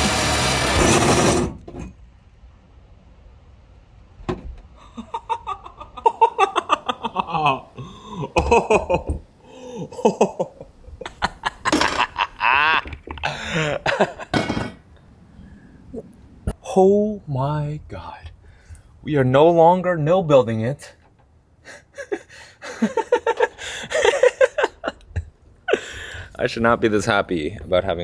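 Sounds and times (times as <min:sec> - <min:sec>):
hole saw cutting sheet metal: 0:00.0 - 0:01.6.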